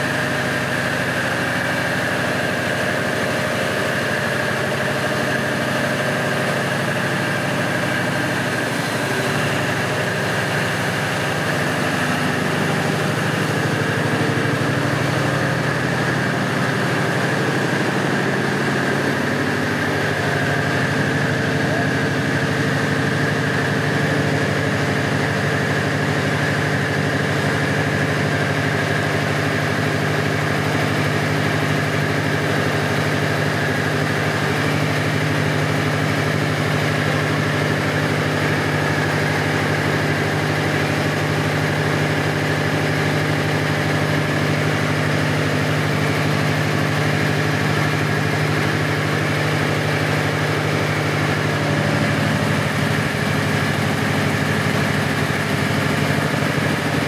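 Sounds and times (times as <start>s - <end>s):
diesel generator drone: 0.0s - 57.0s
high steady whine: 0.9s - 25.2s.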